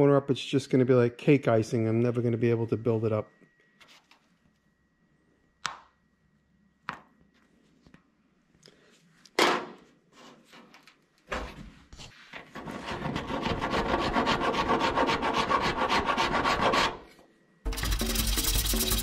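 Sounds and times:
file scraping body filler: 0:12.4 - 0:17.1, 0:17.7 - 0:19.0.

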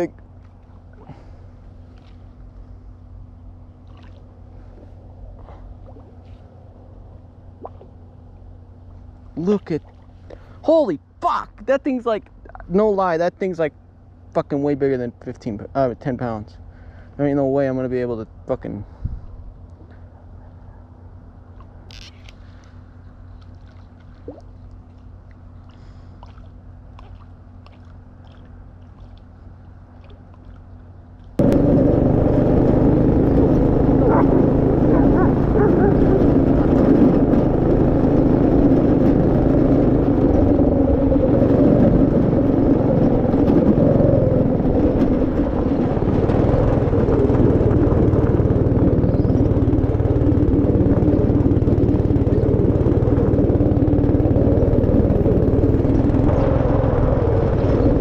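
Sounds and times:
go-kart engine running: 0:31.4 - 0:58.0.

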